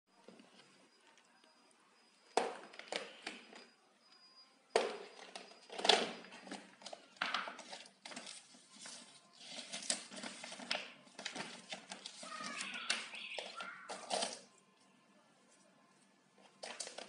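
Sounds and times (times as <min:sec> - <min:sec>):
paper rustling: 0:07.6 - 0:14.4.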